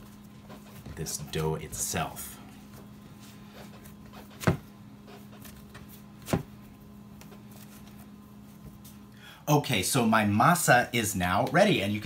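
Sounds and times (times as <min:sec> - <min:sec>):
dough squeezing and rustling: 0:00.0 - 0:09.1
dough thumping on cutting board: 0:04.4 - 0:04.7, 0:06.2 - 0:06.5.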